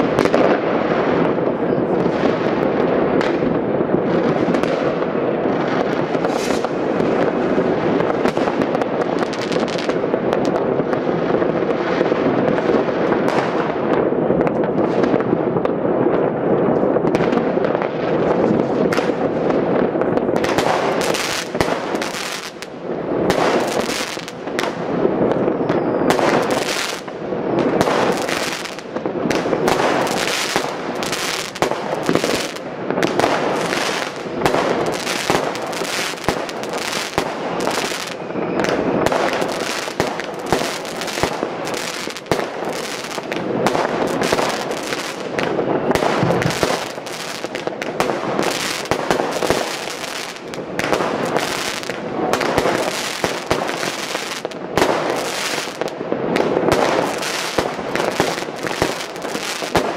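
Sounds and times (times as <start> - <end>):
firecrackers banging: 0.0 - 59.9
fireworks bursting: 0.0 - 59.9.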